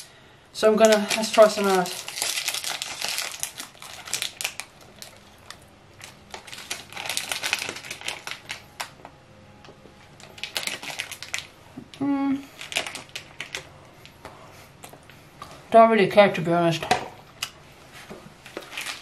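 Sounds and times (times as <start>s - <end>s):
plastic wrapper crinkling: 0.7s - 9.0s, 10.1s - 11.6s, 12.4s - 14.2s, 18.4s - 19.0s.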